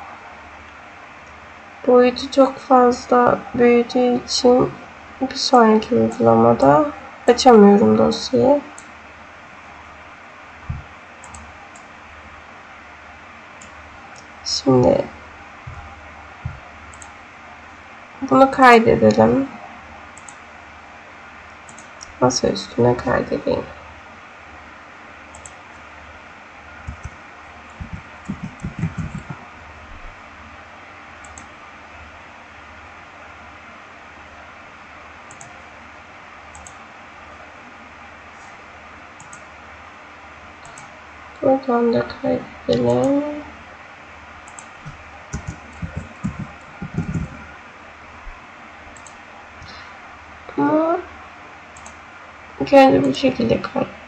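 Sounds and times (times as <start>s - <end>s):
faint mouse clicks: 21.7s - 22.1s, 31.2s - 31.5s
steady hiss: 26.5s - 29.6s
computer keyboard typing: 26.8s - 29.4s, 35.3s - 35.6s, 44.4s - 47.5s.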